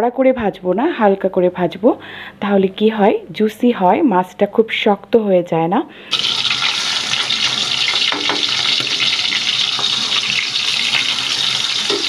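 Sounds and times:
fish sizzling in oil: 6.1 - 12.0.

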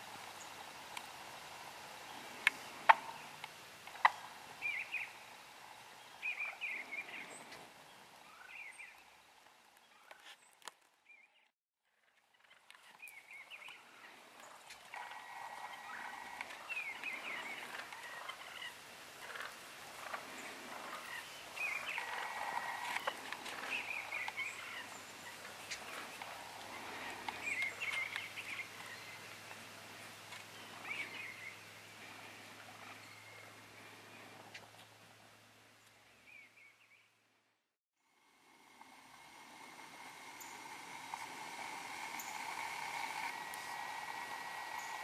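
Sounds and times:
turkeys gobbling: 14.0 - 29.2, 38.8 - 45.0.

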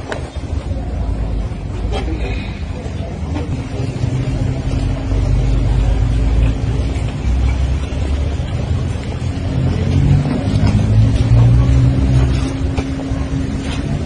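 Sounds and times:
loud low rumble: 3.4 - 14.0.

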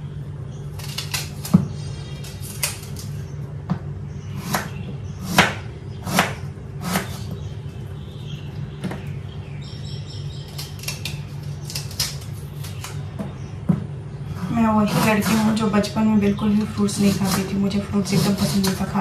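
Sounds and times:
steady low hum: 0.0 - 19.0
knife chopping apples on board: 4.4 - 7.3, 16.9 - 19.0.

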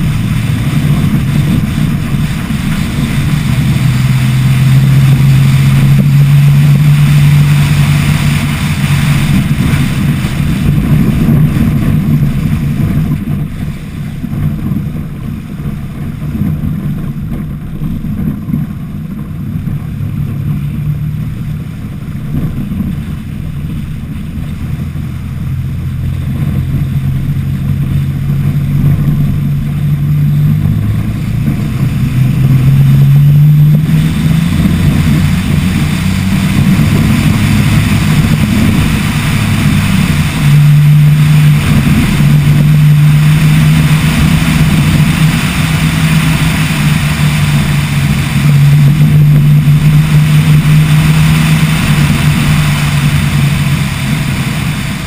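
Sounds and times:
truck engine running hard: 0.0 - 55.0
wind and gravel rushing: 0.0 - 55.0.

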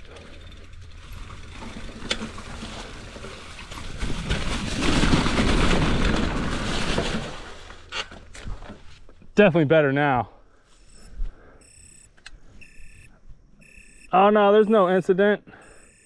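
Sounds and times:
bike tyres rumbling on dirt: 0.0 - 9.2.

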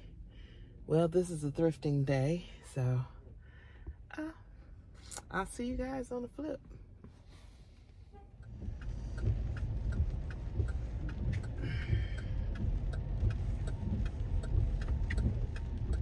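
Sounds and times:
engine and road rumble: 0.0 - 16.0
windshield wiper squeak: 8.1 - 16.0
even ticking: 8.2 - 16.0.

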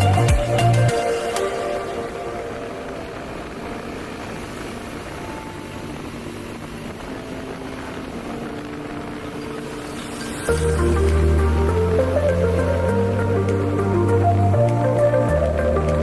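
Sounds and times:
vehicle driving along road: 0.0 - 16.0.

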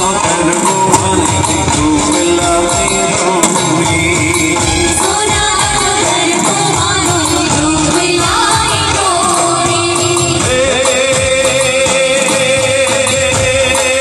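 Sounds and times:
drum rhythm: 0.0 - 14.0
women singing: 4.6 - 12.0.

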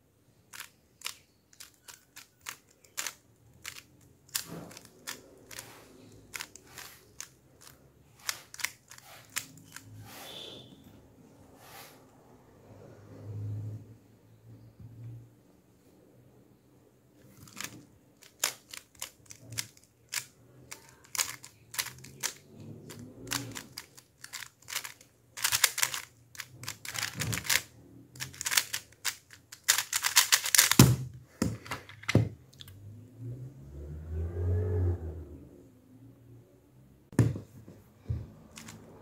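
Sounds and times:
speed cube layers clicking: 0.5 - 9.9, 17.4 - 30.9.

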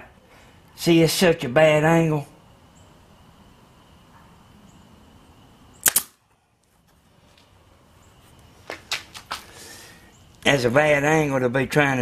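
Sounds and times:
nail gun firing: 5.8 - 6.2.

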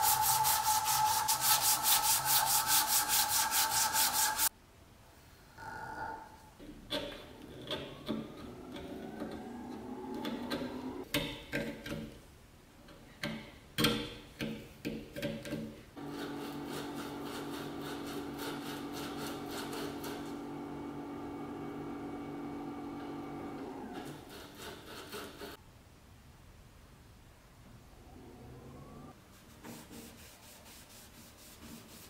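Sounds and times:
chisel scraping wood: 16.0 - 20.4, 24.0 - 25.6.

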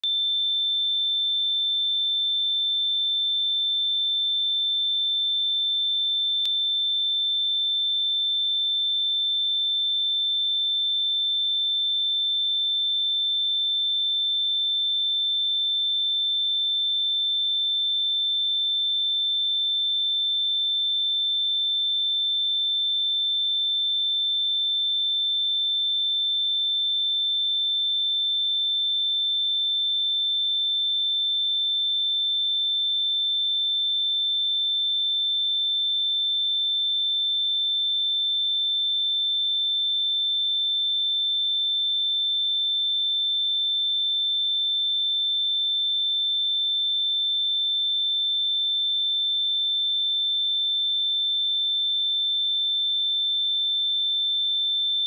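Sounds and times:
high sine-wave test tone: 0.0 - 18.1.

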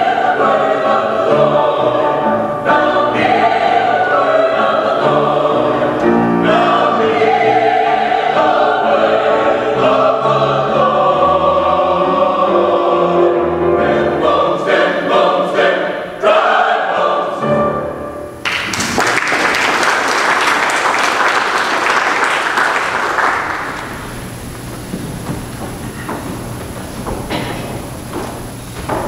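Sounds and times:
mixed choir singing: 0.0 - 18.1
piano accompaniment: 0.0 - 29.0
congregation applauding: 18.4 - 24.7.

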